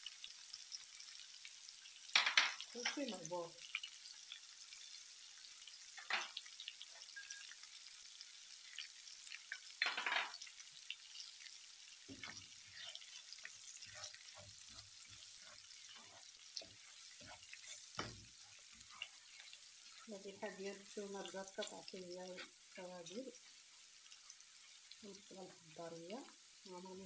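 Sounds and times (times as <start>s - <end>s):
oil sizzling in a pan: 0.0s - 27.0s
spatula scraping and knocking pan: 12.0s - 22.7s.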